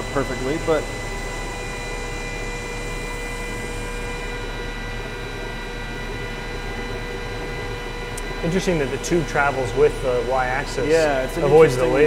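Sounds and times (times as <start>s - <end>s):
laser cutter humming with high whine: 0.0s - 12.0s.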